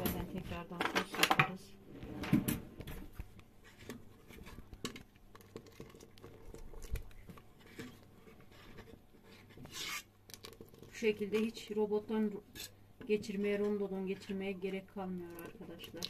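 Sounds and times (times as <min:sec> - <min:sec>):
thick soup pattering: 0:03.2 - 0:12.8, 0:14.2 - 0:16.0.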